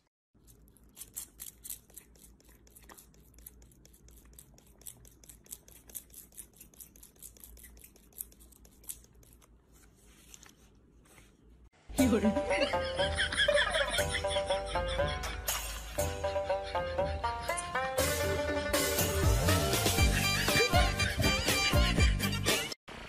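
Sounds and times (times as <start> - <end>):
brush scratching fur: 0.5 - 10.5.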